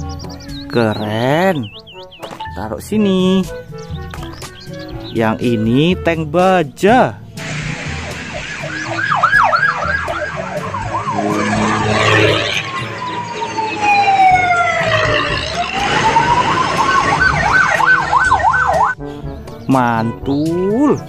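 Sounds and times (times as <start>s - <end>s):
tracked vehicle engine rumble: 7.3s - 18.9s
electronic siren yelping and wailing: 7.4s - 19.0s.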